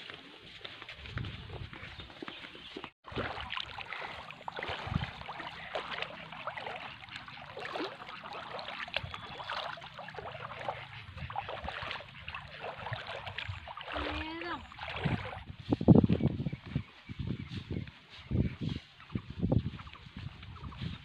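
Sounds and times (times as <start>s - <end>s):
water splashing around wading feet: 2.1s - 15.6s, 18.9s - 21.0s.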